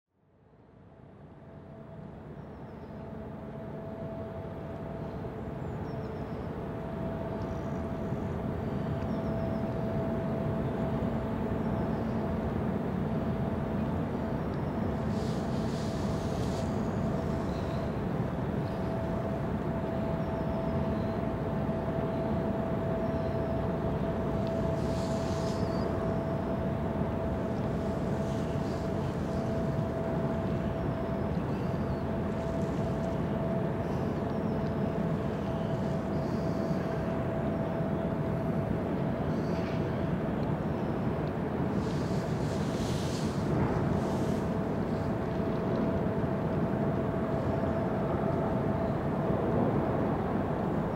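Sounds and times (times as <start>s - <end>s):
ship engines low rumble: 0.6s - 50.9s.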